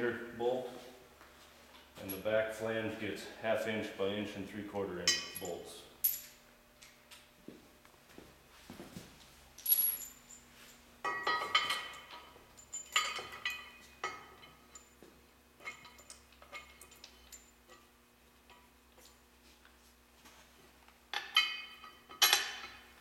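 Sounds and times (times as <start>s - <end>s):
steel bolts clinking on metal: 11.1s - 15.0s, 21.1s - 23.0s.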